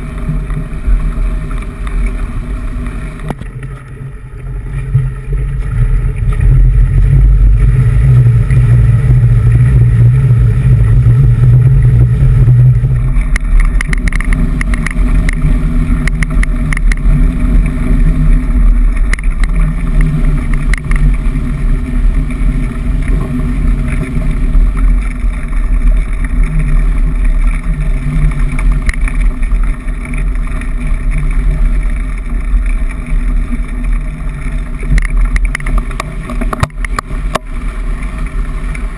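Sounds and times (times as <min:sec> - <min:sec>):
bike clicks and rattles: 0:00.0 - 0:38.9
bike wheels splashing through water: 0:00.0 - 0:38.9.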